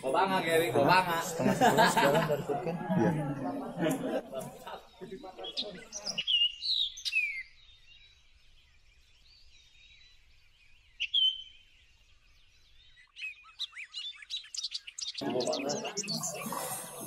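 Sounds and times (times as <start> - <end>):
bird chirps: 4.6 - 17.0
bird whistled calls: 5.5 - 8.0, 11.0 - 11.6.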